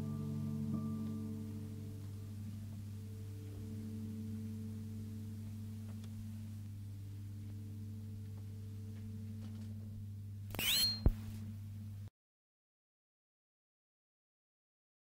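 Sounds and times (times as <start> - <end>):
low electrical hum: 0.0 - 12.1
squeaky chirp: 10.5 - 11.1
sharp click: 10.5 - 11.2.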